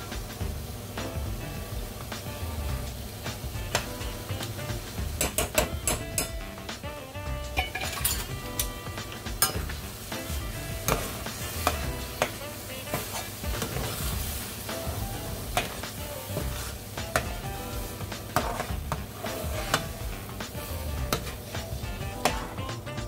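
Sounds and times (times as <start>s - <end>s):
background music: 0.0s - 23.0s
sauce sizzling: 0.0s - 23.0s
metal spoon scraping skillet: 7.5s - 22.8s.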